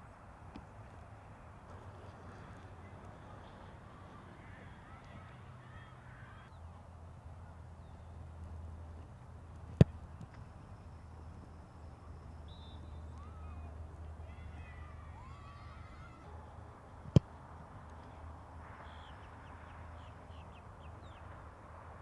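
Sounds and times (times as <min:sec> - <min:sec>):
outdoor background noise: 0:00.0 - 0:22.0
foot kicking football: 0:09.5 - 0:10.5.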